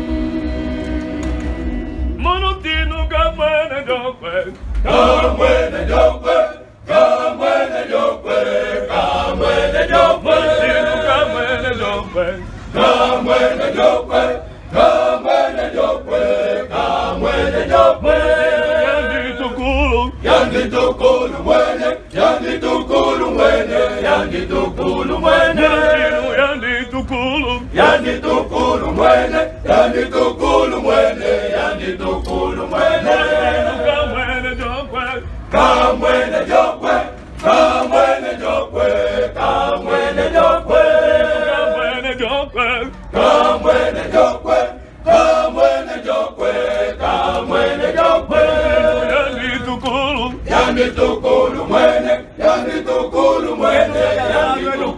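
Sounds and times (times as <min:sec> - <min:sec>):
male choir singing a hymn: 0:03.3 - 0:54.9.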